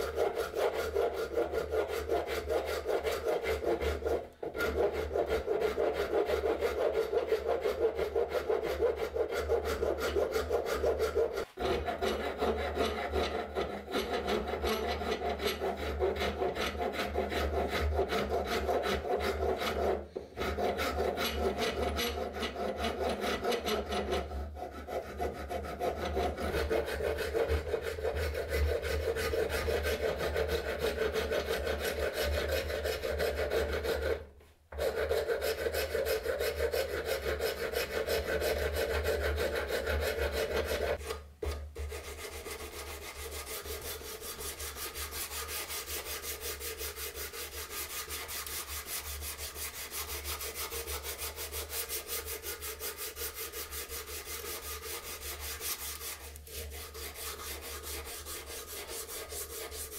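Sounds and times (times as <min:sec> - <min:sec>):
rasp filing wood: 0:00.0 - 0:59.9.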